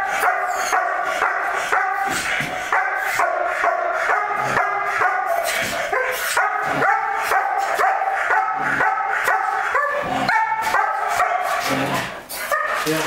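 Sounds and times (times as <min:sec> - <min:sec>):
dog barking rapidly: 0:00.0 - 0:11.8, 0:12.4 - 0:13.0.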